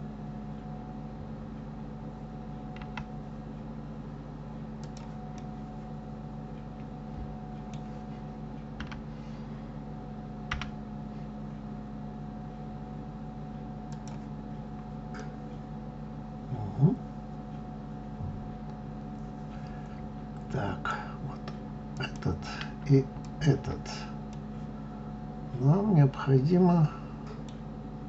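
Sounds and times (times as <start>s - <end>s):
electrical hum: 0.0s - 28.0s
keyboard and mouse clicks: 2.8s - 3.1s, 4.8s - 5.5s, 8.8s - 9.0s, 13.9s - 14.3s.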